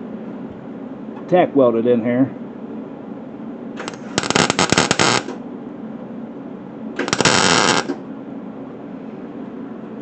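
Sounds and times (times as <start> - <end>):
welder arc crackling: 3.8 - 5.4, 7.0 - 8.0.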